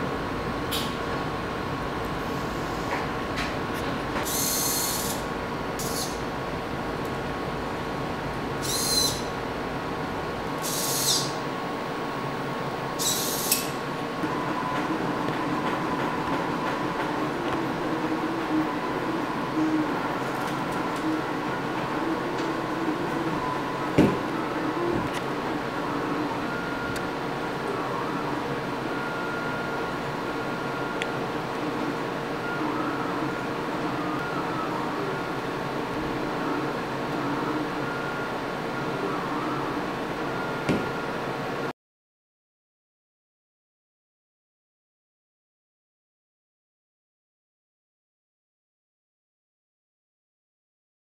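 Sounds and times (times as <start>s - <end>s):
steady background hum: 0.0s - 41.7s.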